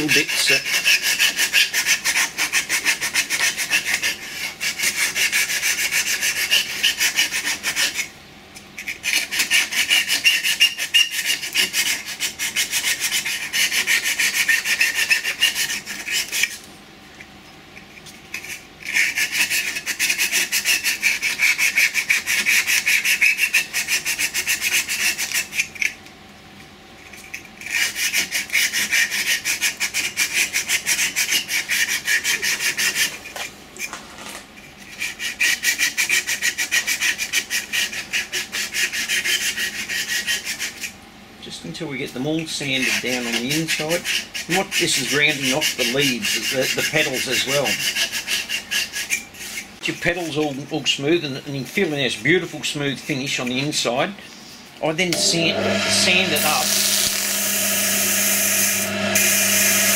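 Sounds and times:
sandpaper rasping on spinning wood: 0.0 - 8.0, 9.0 - 16.5, 18.9 - 25.6, 27.7 - 33.1, 34.9 - 40.9, 42.6 - 50.6, 55.2 - 59.9.

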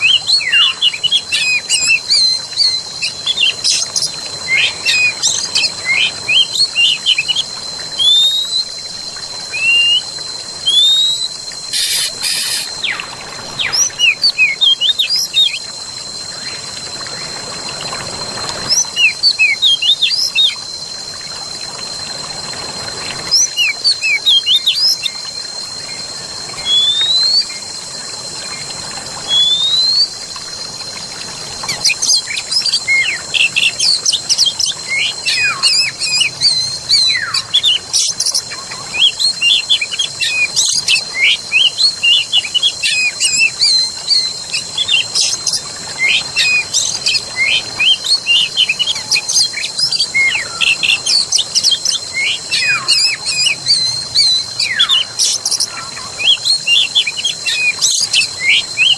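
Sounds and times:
flowing water: 0.0 - 58.9
birds chirping: 11.7 - 15.6.

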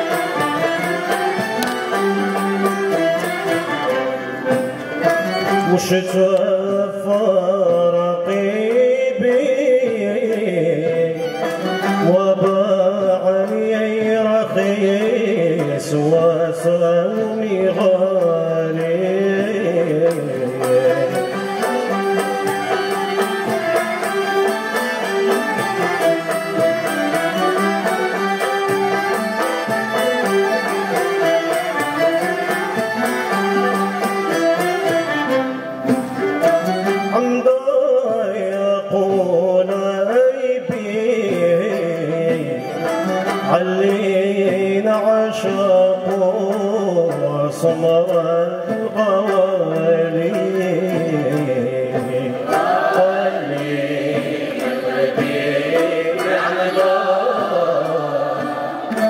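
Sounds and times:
plucked string ensemble with violins: 0.0 - 59.0
man singing: 5.2 - 23.0, 36.7 - 59.0.

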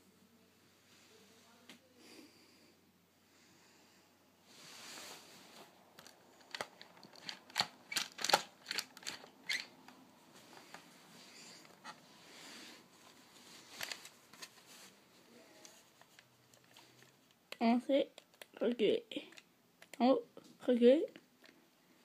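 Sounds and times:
soft rubbing: 4.4 - 5.8, 10.2 - 17.0.

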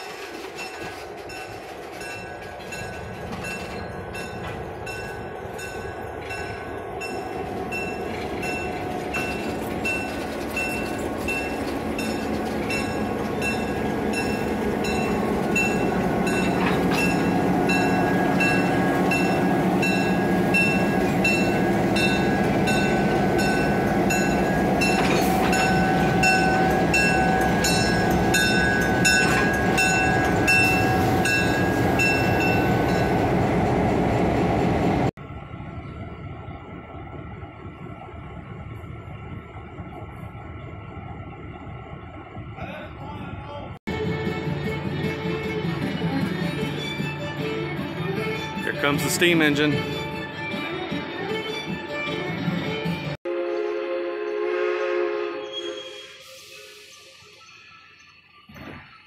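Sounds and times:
steel wheels clicking on rails: 0.0 - 35.1
diesel locomotives passing: 0.0 - 59.0
train cars rolling past: 0.0 - 59.0.

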